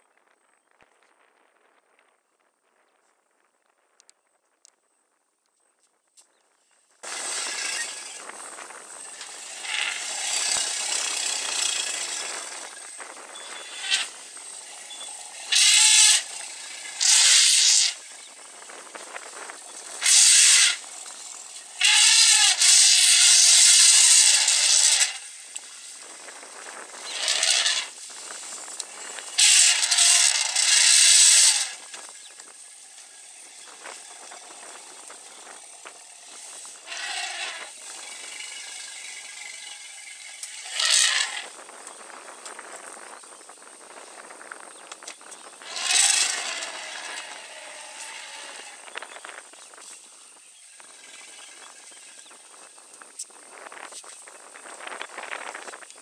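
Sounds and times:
elephants trumpeting blasts: 0:09.0 - 0:18.1, 0:19.8 - 0:26.0, 0:26.9 - 0:28.0, 0:28.9 - 0:31.9, 0:36.3 - 0:41.6, 0:45.6 - 0:49.0.

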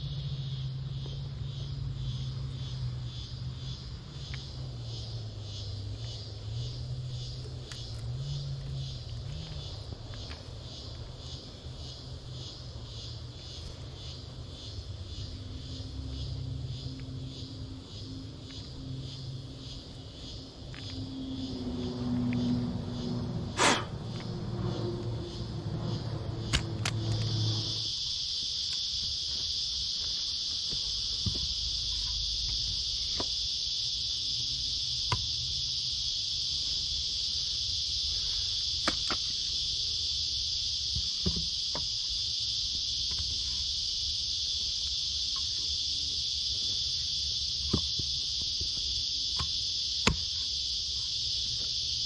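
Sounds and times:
high-pitched insect drone: 0:00.0 - 0:52.0
low hum: 0:15.3 - 0:27.9.

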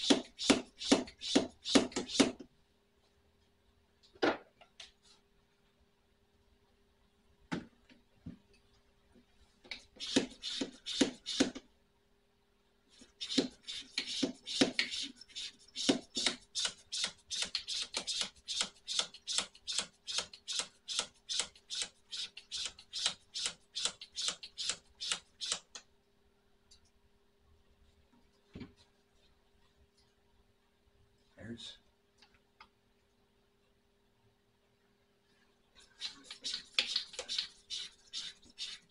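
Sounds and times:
hand pump hissing strokes: 0:36.0 - 0:38.9.

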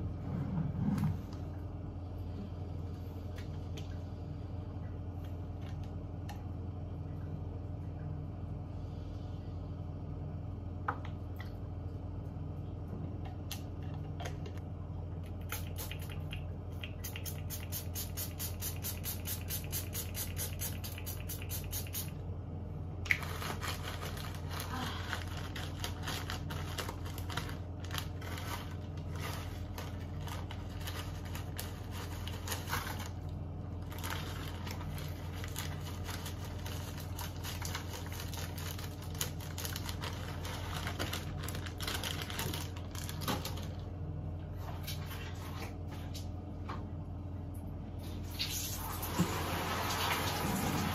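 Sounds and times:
steady low hum: 0:00.0 - 0:50.9
crackling of hands handling things: 0:23.0 - 0:46.4.

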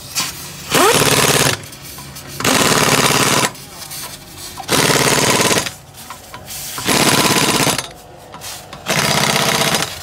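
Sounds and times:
impact wrench hammering: 0:02.4 - 0:03.6, 0:04.6 - 0:10.0.

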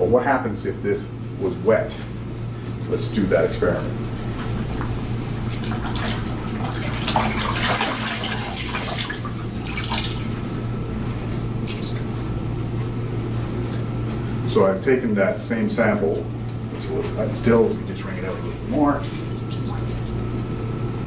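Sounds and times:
steady low hum: 0:00.0 - 0:21.0
water splashing in bucket: 0:05.5 - 0:10.5, 0:11.6 - 0:12.1, 0:19.3 - 0:20.8.

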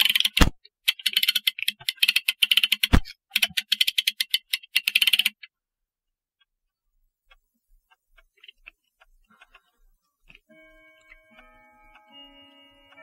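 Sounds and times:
ratchet clicking: 0:00.0 - 0:05.4.

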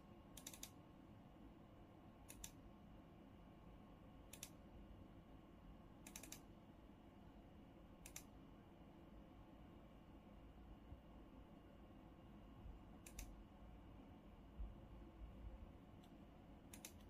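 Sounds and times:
room hum: 0:00.0 - 0:17.0
computer mouse double clicks: 0:06.0 - 0:06.4, 0:08.0 - 0:08.3, 0:13.0 - 0:13.3, 0:16.7 - 0:17.0.

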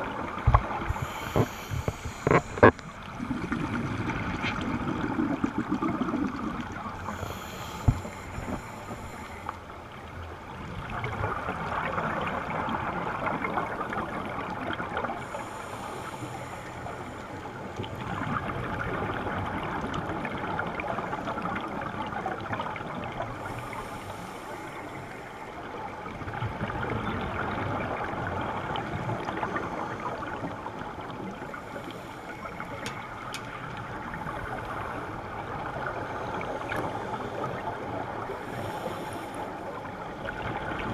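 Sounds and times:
gurgling exhaled bubbles: 0:00.0 - 0:08.8
breath hissing through regulator: 0:00.8 - 0:02.9, 0:07.0 - 0:09.5.

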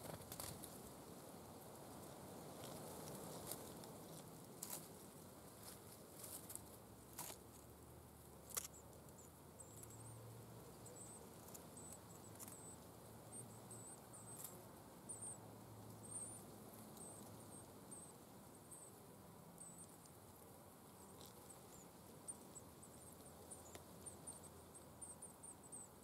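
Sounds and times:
twigs ticking: 0:08.4 - 0:08.8.

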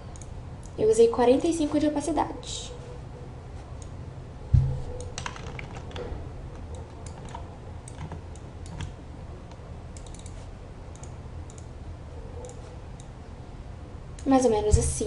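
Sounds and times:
dull thump against desk: 0:04.6 - 0:04.9
keyboard keys tapping: 0:04.6 - 0:09.0
mouse clicks: 0:12.4 - 0:13.1.

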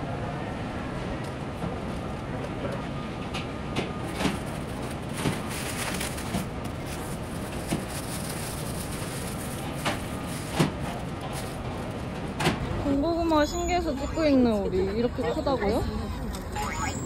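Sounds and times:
plastic gloves crinkling: 0:04.1 - 0:12.4.

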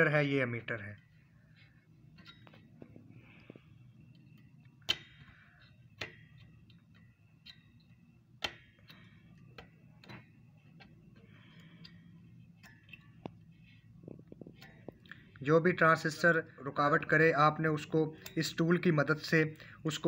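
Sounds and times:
metal clicks on circuit board: 0:08.4 - 0:10.9.

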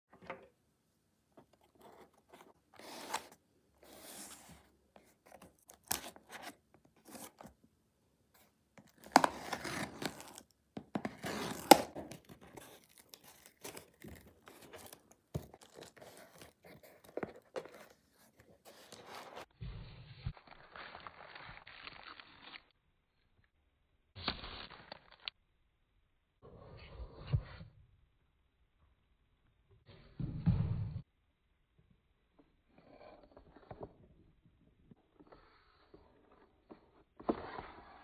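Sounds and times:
cardboard and bubble wrap crinkling: 0:08.9 - 0:19.5.

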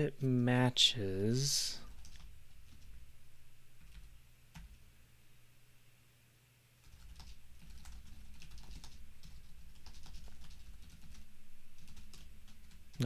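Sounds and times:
computer keyboard typing: 0:01.9 - 0:03.0, 0:03.8 - 0:04.8, 0:06.8 - 0:13.0.

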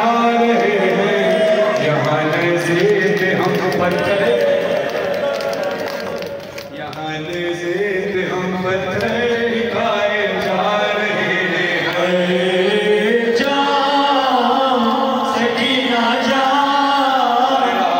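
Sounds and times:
men chanting together: 0:07.0 - 0:17.9.

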